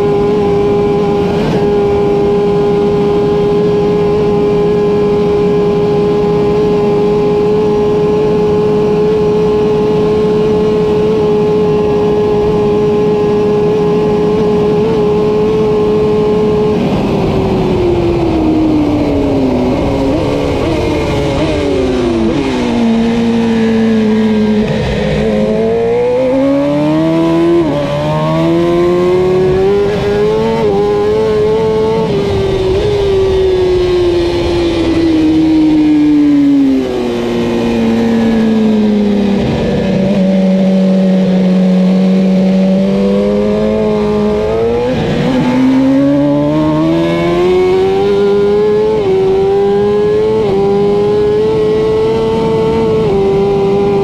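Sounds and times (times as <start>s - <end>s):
motorcycle engine revving: 0.0s - 54.0s
wind rush: 15.8s - 42.3s.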